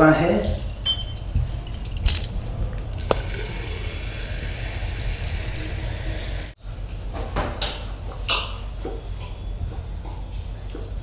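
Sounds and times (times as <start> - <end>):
cola fizzing as poured: 2.8 - 6.6
bottle cap clicking open: 3.0 - 3.4.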